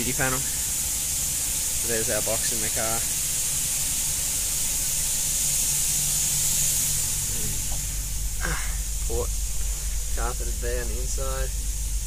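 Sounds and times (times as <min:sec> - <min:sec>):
steady background hiss: 0:00.0 - 0:12.0
low hum: 0:06.1 - 0:12.0.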